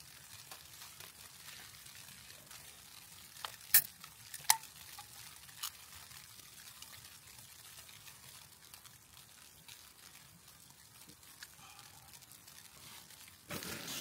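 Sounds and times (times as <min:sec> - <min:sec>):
metallic clicks and taps on can: 0:03.4 - 0:05.8.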